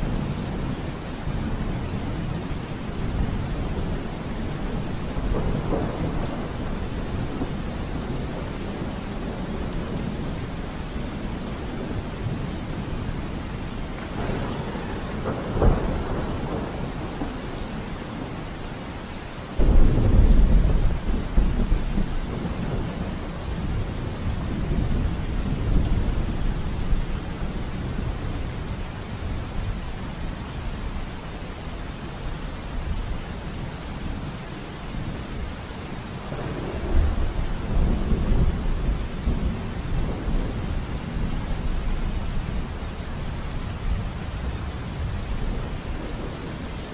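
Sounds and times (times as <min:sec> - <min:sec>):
thunder rumbling: 0:00.0 - 0:13.3, 0:13.9 - 0:18.5, 0:19.6 - 0:28.8, 0:36.2 - 0:42.8
steady rain: 0:00.0 - 0:46.9
thunder crack: 0:14.0 - 0:17.3.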